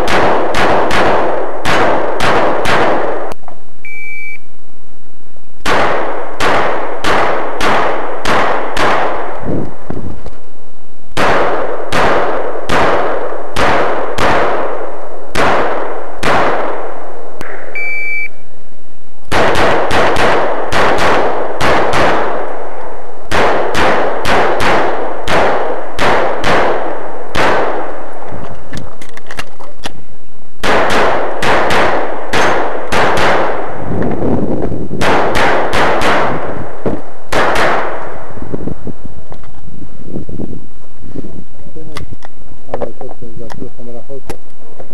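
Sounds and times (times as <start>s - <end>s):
rapid pistol shots: 0.0s - 3.3s, 5.6s - 9.4s, 11.2s - 17.1s, 19.3s - 28.2s, 30.6s - 33.8s, 35.0s - 38.2s
shot timer beep: 3.8s - 4.5s, 17.4s - 18.4s.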